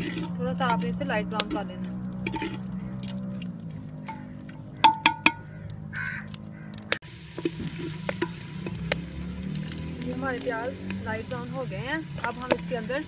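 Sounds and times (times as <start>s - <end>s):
stirring scraping clicks: 0.0s - 4.7s
onions sizzling in oil: 7.0s - 13.0s.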